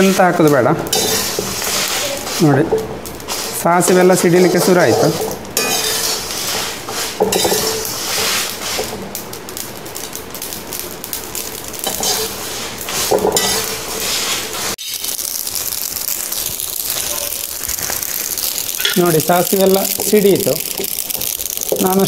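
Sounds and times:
metal spatula scraping a pan: 0.0s - 9.0s, 11.8s - 15.0s
mustard seeds crackling: 0.0s - 22.0s.

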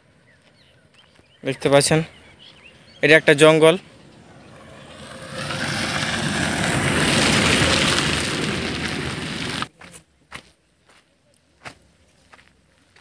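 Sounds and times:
footsteps on dry ground: 0.3s - 1.4s, 6.3s - 13.0s
car driving past on dirt road: 2.5s - 9.7s.

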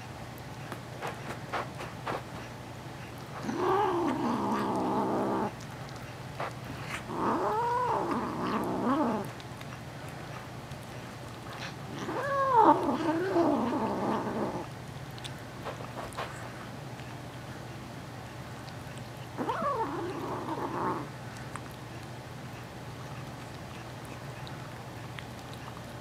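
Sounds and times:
kitten yowling growls: 3.4s - 5.6s, 6.9s - 9.4s, 11.5s - 14.8s, 19.0s - 21.1s.

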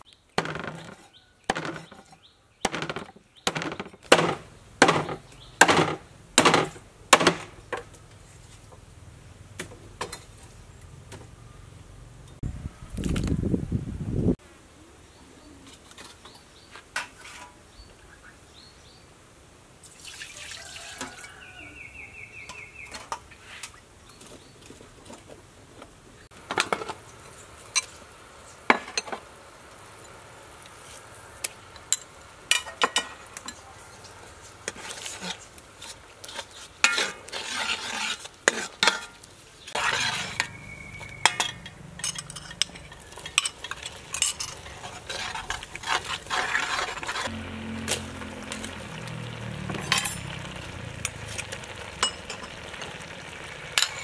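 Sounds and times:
food sizzling: 26.3s - 54.0s
metal ladle scraping a pot: 34.6s - 48.0s, 53.8s - 54.0s.

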